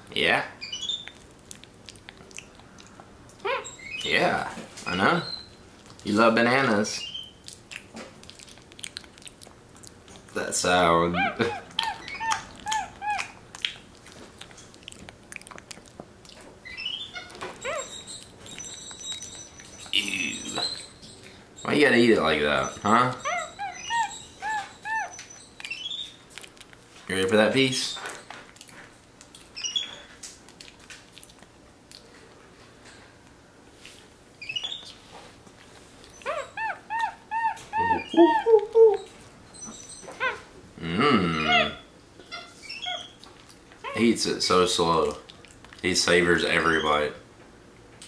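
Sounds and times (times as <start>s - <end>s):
monkey chirping: 0.6s - 1.2s, 3.4s - 4.2s, 7.0s - 7.4s, 11.1s - 13.4s, 16.6s - 26.2s, 29.6s - 30.0s, 34.4s - 34.9s, 36.1s - 40.4s, 41.4s - 43.2s
monkey chewing and lip-smacking: 0.8s - 4.0s, 7.2s - 10.4s, 11.2s - 21.4s, 22.7s - 27.0s, 28.5s - 32.1s, 45.1s - 45.9s
monkey chewing wet clicks: 7.4s - 10.3s, 11.7s - 16.5s.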